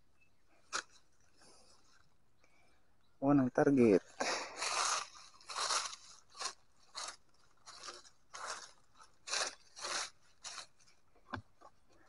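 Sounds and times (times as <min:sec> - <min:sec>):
hand raking dry leaves: 0:03.8 - 0:11.1.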